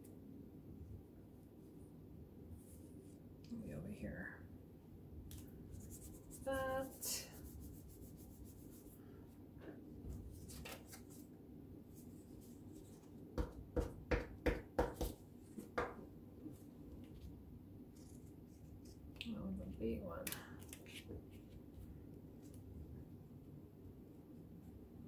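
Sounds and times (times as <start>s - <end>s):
glue stick rubbing on paper: 5.7s - 9.0s.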